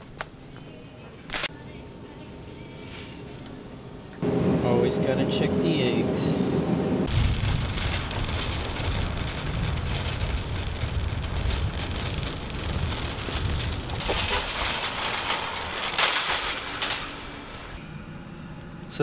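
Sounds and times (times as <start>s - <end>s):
loud metal clatter: 7.1s - 17.8s
shopping cart rattling on asphalt: 7.1s - 17.8s.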